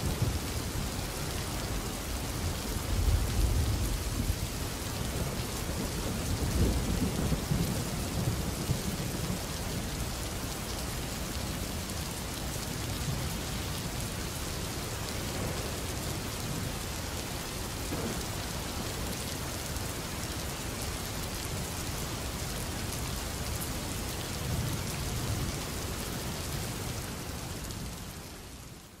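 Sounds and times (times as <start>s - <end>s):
heavy rain: 0.0s - 29.0s.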